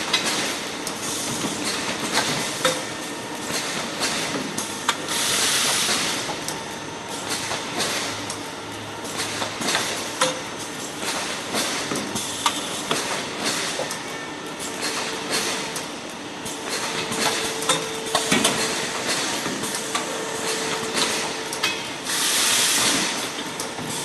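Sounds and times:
packing machine running: 0.0s - 24.0s
hiss: 22.1s - 23.2s.

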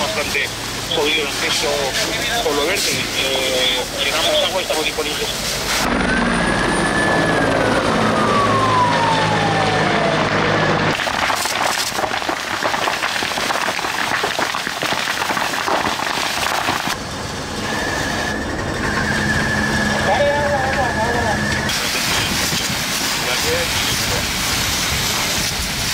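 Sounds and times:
fire hose spraying: 0.0s - 6.0s, 10.9s - 17.0s, 19.1s - 25.9s
burning vegetation crackling: 0.0s - 25.9s
fire engine pump whine: 0.0s - 25.9s
helicopter passing overhead: 5.9s - 10.9s.

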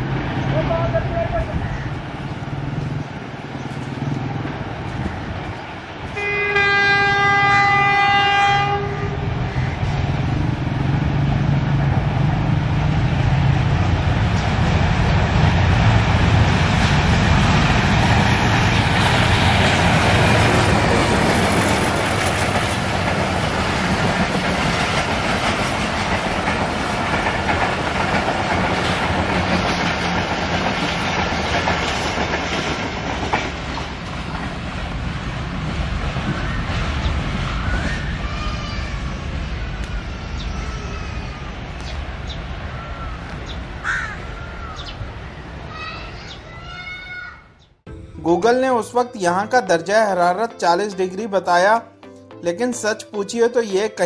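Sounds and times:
train engine and wheels rumbling: 0.0s - 47.1s
locomotive horn blast: 6.2s - 9.2s.

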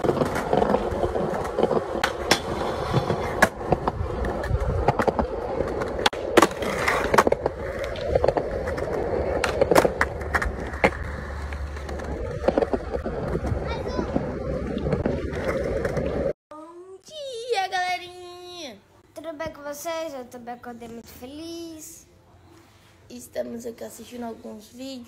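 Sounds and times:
skateboard clacking on ground: 0.0s - 14.2s
skateboard wheels rolling on concrete: 0.0s - 16.4s.

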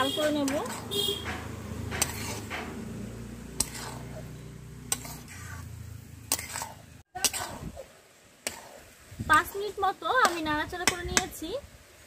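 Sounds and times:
metal spatula knocking on pan: 10.2s - 11.4s.

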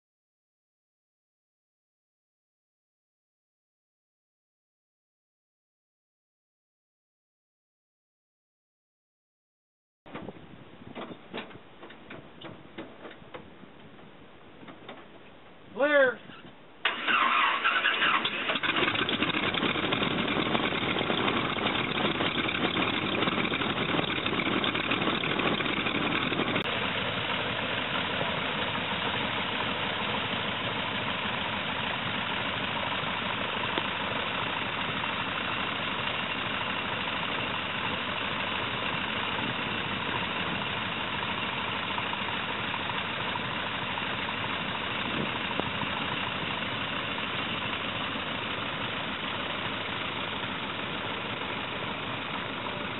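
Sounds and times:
radial engine idling: 15.8s - 52.9s.

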